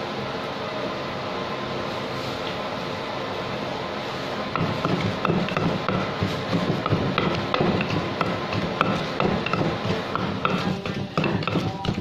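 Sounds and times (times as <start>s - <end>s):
wooden pestle pounding in mortar: 4.6s - 12.0s.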